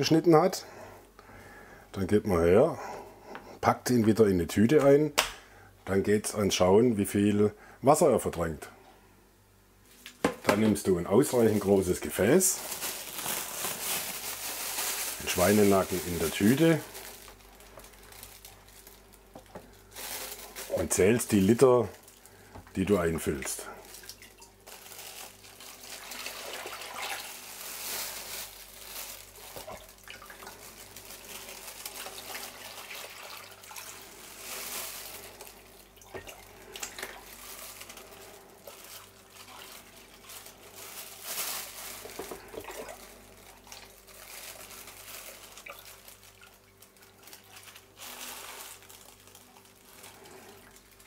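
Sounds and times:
water pouring into plastic tub: 0:23.3 - 0:51.0.

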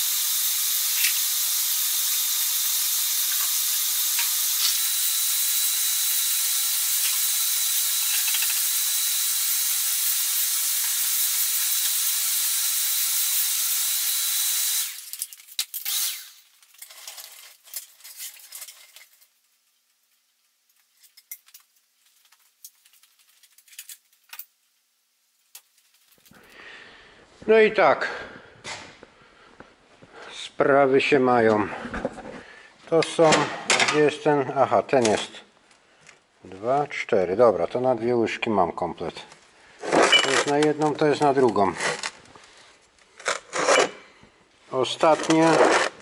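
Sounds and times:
shop vacuum whining motor: 0:00.0 - 0:15.2, 0:15.8 - 0:16.4.

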